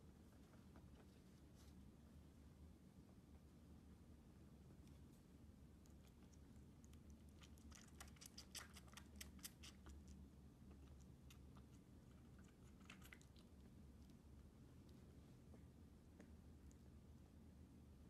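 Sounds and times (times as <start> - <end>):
low steady hum: 0.0 - 18.0
baby animal suckling on bottle: 6.1 - 13.6.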